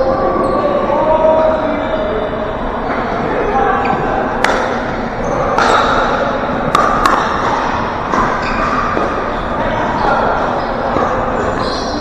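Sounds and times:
voices echoing in gym: 0.0 - 12.0
paddle hitting plastic ball: 6.7 - 8.3.

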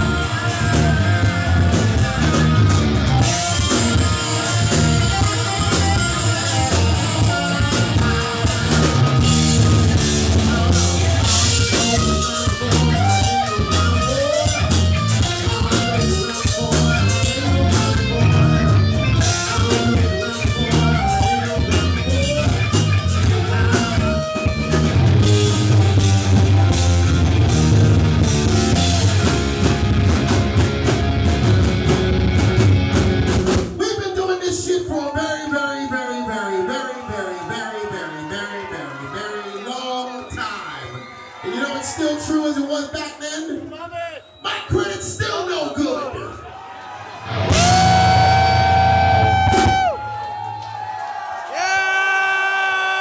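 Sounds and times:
electric guitar lead: 0.0 - 33.7, 47.2 - 50.2
live rock band playing: 0.0 - 33.8, 47.2 - 50.3.

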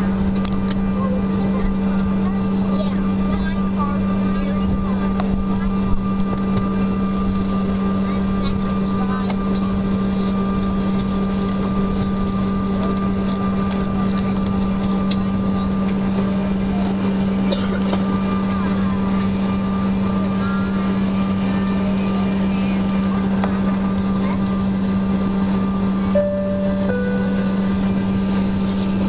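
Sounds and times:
jet cabin drone: 0.0 - 29.0
low hum: 26.0 - 29.0
brief tone: 26.1 - 28.8.

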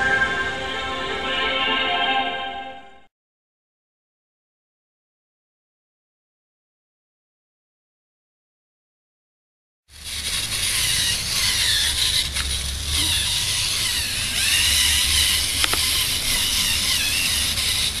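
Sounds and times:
servo motors whining: 10.0 - 18.0
sharp clicks: 15.6 - 16.0.

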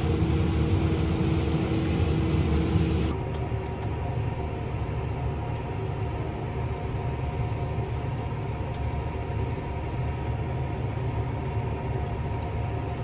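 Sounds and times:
tractor diesel engine rumbling: 0.0 - 3.1.

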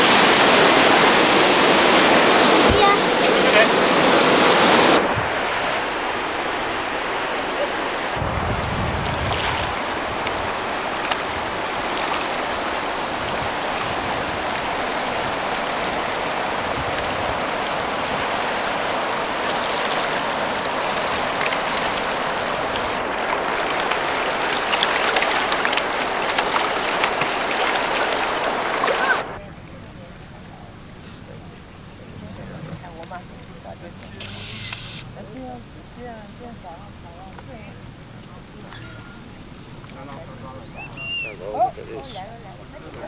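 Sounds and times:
river rushing over rocks: 0.0 - 43.0
foot kicking water splashes: 17.6 - 29.4.

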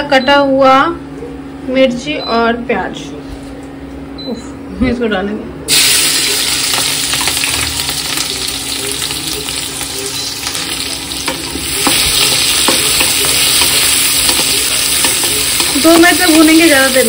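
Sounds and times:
onions sizzling in oil: 5.7 - 17.0.

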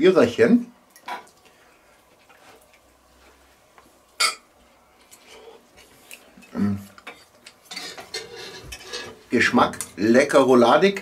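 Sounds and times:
cutlery scraping and ticking: 6.1 - 10.0.

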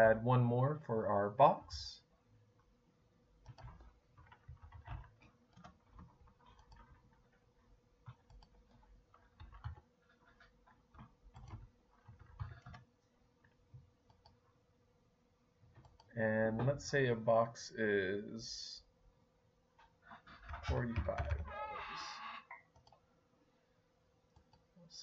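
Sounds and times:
faint steady hum: 0.0 - 25.0
computer keyboard typing: 3.4 - 7.4, 8.0 - 12.8.

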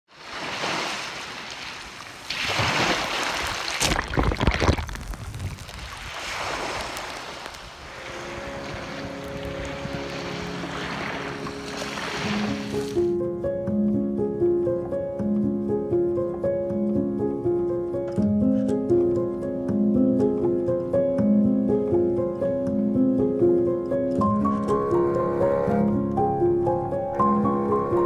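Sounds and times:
small waves breaking on shore: 0.1 - 13.1
wind rumbling on microphone: 3.4 - 13.0.

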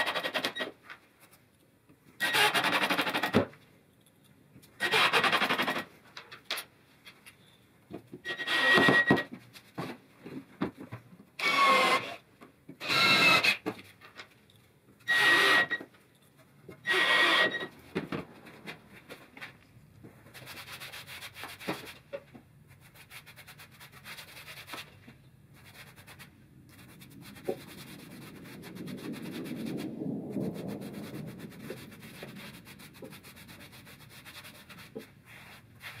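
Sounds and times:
cordless drill driving screws: 8.3 - 9.2, 11.4 - 12.2, 12.8 - 13.6, 15.1 - 15.8, 16.8 - 17.7
gloved hand rubbing wood: 20.3 - 22.1, 25.6 - 29.9, 30.6 - 36.0.

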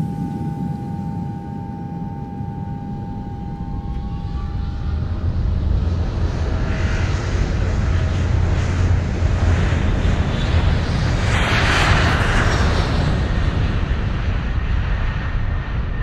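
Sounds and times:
airplane engines whining: 0.0 - 16.0.

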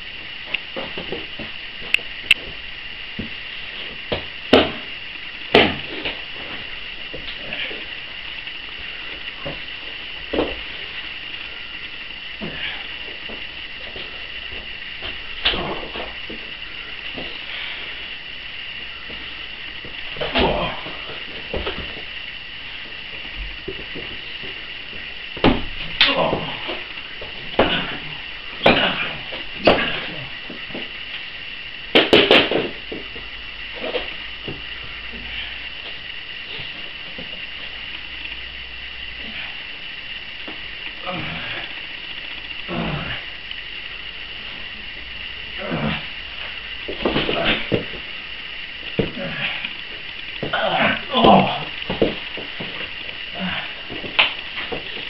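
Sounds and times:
steady high hiss: 0.0 - 55.0
bodies thudding on a mat: 4.1 - 4.9, 5.5 - 7.3, 25.4 - 26.8, 27.5 - 30.9.

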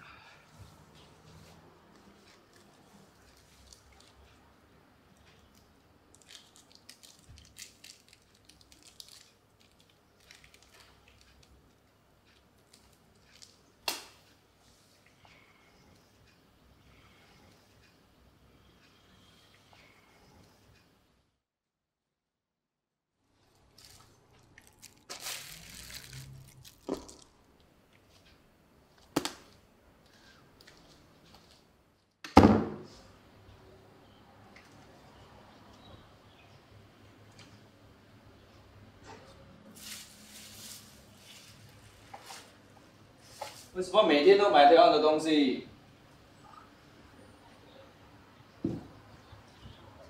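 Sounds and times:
plastic bag crinkling: 6.1 - 11.5, 23.5 - 27.4
objects knocking on table: 48.6 - 48.9.

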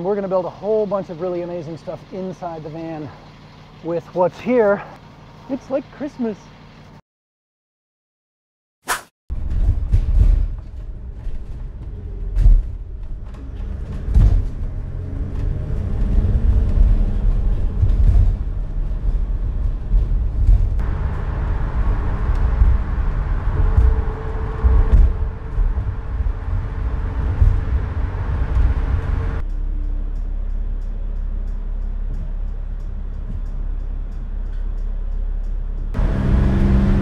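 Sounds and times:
high road roar: 0.0 - 7.0, 9.3 - 37.0
knocks and rattles: 9.3 - 29.4
deep road rumble inside van: 9.3 - 37.0.

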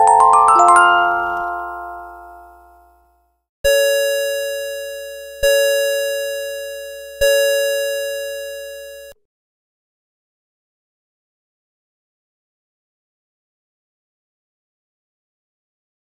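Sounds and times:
music box melody: 0.0 - 2.9.

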